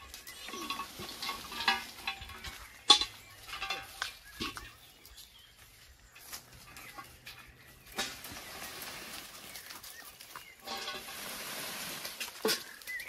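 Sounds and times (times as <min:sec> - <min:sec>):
leaves and branches rustling: 0:00.0 - 0:13.0.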